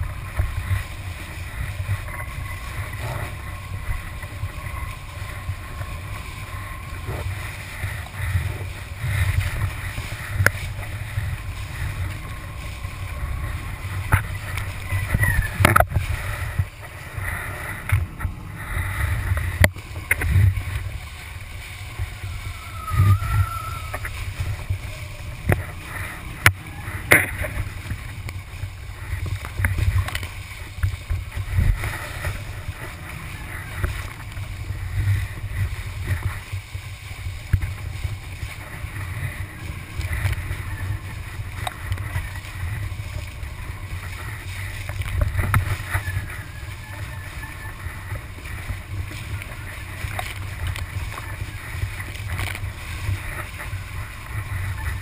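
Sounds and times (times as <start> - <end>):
kiteboard slapping over water: 0.0 - 55.0
wind buffeting microphone: 0.0 - 55.0.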